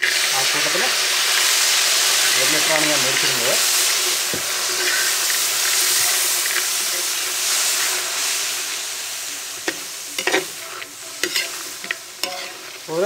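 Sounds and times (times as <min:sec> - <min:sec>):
sizzling and hissing in a hot pan: 0:00.0 - 0:13.0.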